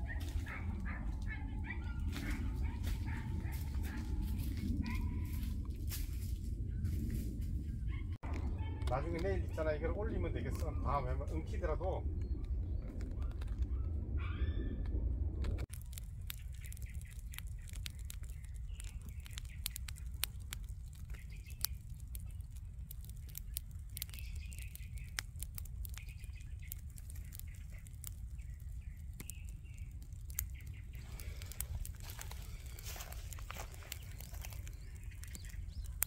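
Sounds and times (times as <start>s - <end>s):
fire crackling and popping: 0.0s - 7.4s, 8.2s - 14.2s, 14.9s - 36.0s
low rumble: 0.0s - 19.4s
birds chirping faintly: 16.2s - 36.0s.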